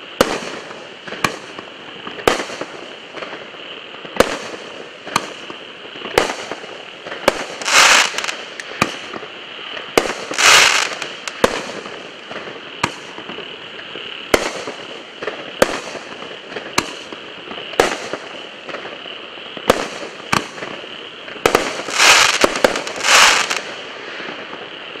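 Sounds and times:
fireworks shells bursting: 4.2 - 19.0, 21.4 - 24.6.

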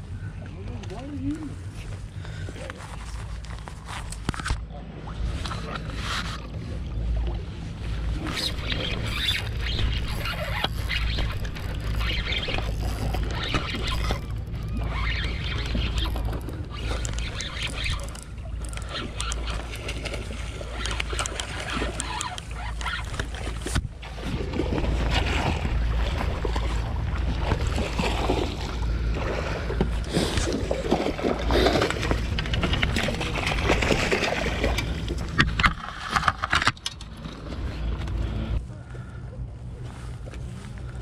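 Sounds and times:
wind rumbling on microphone: 1.0 - 41.0
water splashing: 7.9 - 36.8.

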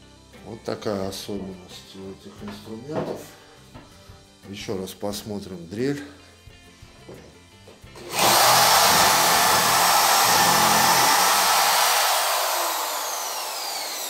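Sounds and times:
electric drill boring into wood: 8.0 - 14.0.

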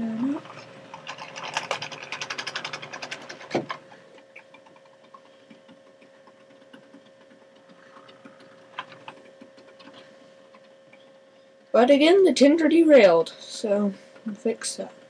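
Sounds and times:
steady thin hum: 0.0 - 15.0
model train wheels clicking: 0.9 - 3.8.

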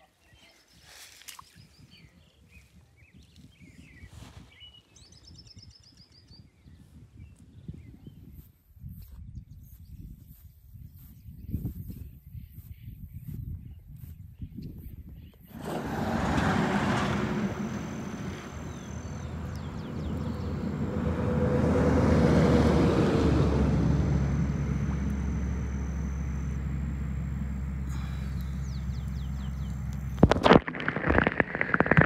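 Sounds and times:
vehicle passing by: 15.5 - 30.3.

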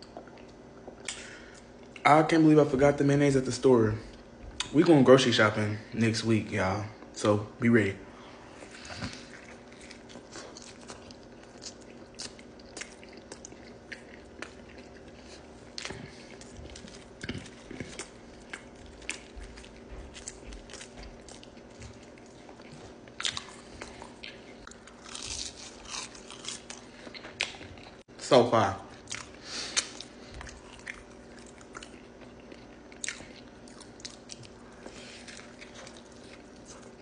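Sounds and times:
close-up chewing: 8.5 - 28.1, 28.9 - 37.0.

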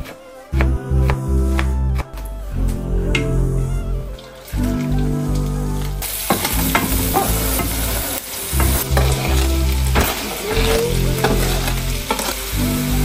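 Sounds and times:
onion sizzling in oil: 6.0 - 13.0.

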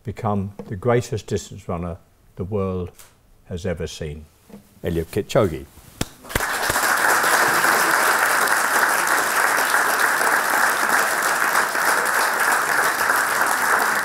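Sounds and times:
audience applause: 6.2 - 14.0.

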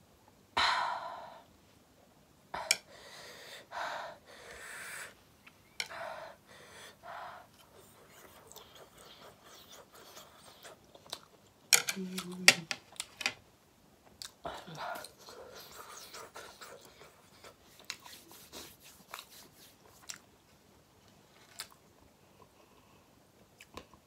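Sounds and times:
noisy breaths: 2.6 - 5.2, 5.8 - 7.6
person humming: 11.9 - 12.7.

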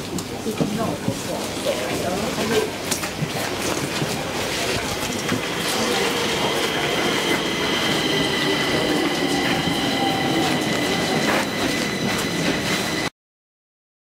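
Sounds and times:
rail vehicle rumble: 0.0 - 13.1
high-pitched whine: 4.3 - 13.1.

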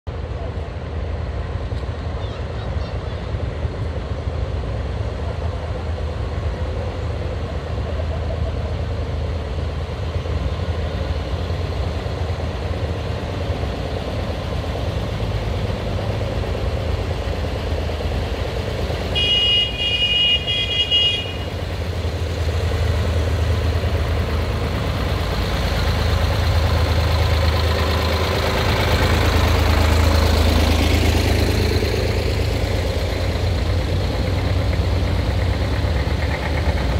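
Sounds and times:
tractor engines running: 0.1 - 36.9
high horn: 19.2 - 21.5.

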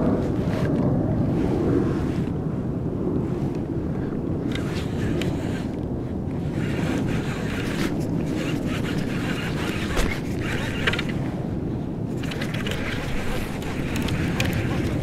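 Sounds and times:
fishing reel clicking and ratcheting: 6.5 - 11.2, 12.2 - 15.0.

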